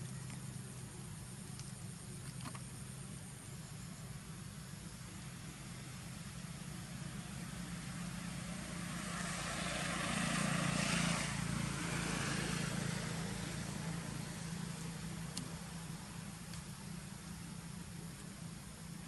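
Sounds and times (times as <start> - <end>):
passing vehicle engine: 5.8 - 16.4.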